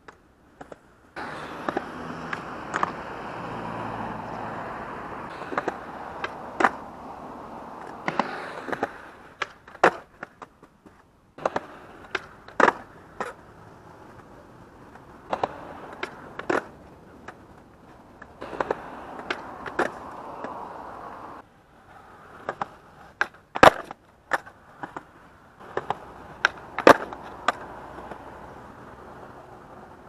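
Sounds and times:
skateboard wooden clacks: 0.0s - 3.0s, 5.3s - 6.9s, 7.7s - 20.6s, 21.9s - 28.3s
skateboard wheels rolling on concrete: 0.0s - 30.0s.

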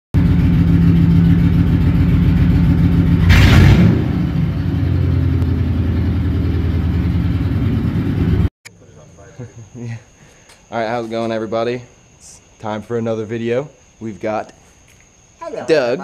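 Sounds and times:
car engine rumbling: 0.2s - 8.5s.

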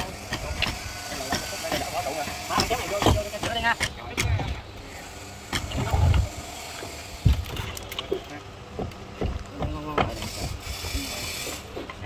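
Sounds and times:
knocks and thuds on wood: 8.8s - 10.6s.

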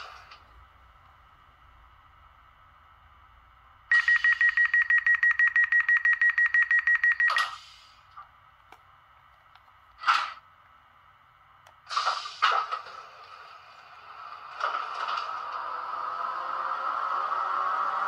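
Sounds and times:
rapidly pulsing beep: 3.9s - 7.4s
short hiss: 7.4s - 8.1s, 11.9s - 12.7s.

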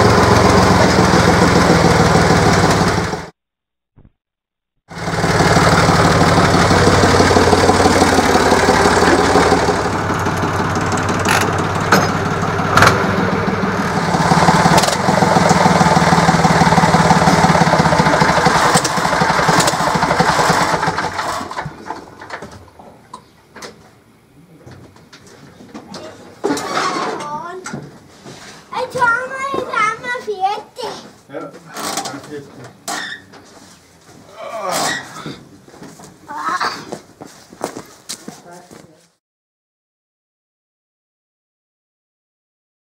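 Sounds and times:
tractor diesel engine running: 0.0s - 3.4s, 4.9s - 22.8s.

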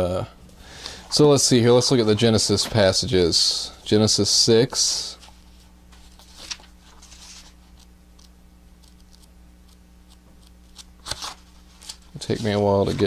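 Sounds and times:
faint electrical hum: 0.0s - 13.0s
pages rustling: 5.2s - 7.9s, 10.4s - 13.0s.

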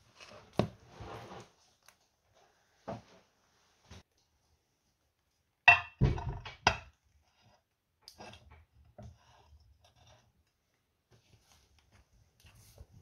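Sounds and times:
glass dish knocking: 5.7s - 6.9s.

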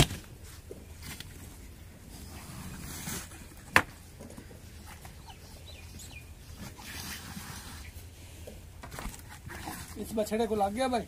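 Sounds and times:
birds chirping: 4.0s - 7.0s.

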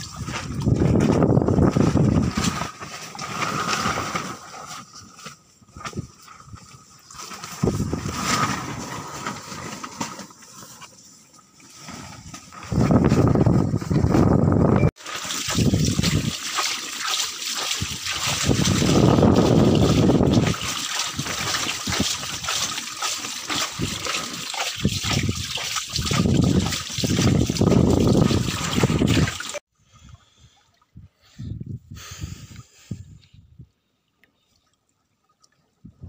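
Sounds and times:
water pouring and splashing: 0.0s - 5.0s, 5.7s - 14.3s, 14.9s - 29.7s.

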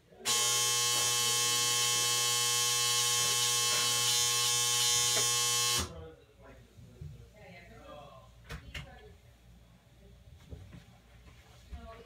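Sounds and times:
washing machine buzzer: 0.1s - 5.9s.

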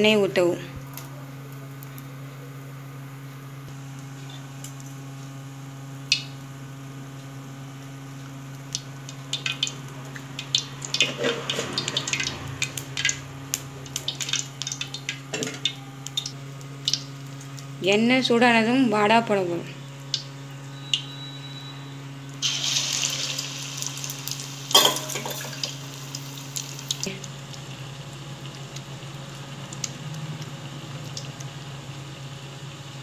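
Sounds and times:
oil crackling and popping: 7.1s - 17.7s, 22.4s - 33.0s.

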